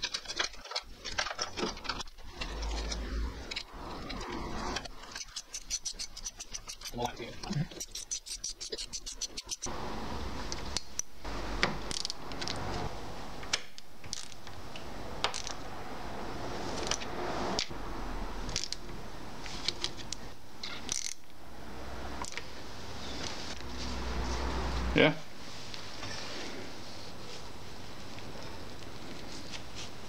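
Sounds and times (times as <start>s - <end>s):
small metal clinks and scrapes: 0.0s - 9.7s
steady background noise: 0.0s - 30.0s.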